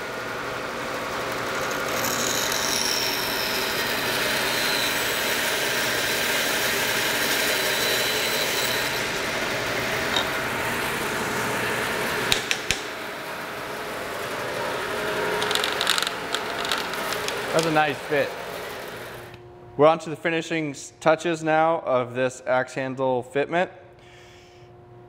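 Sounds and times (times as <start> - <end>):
bandsaw running: 1.2 - 19.4.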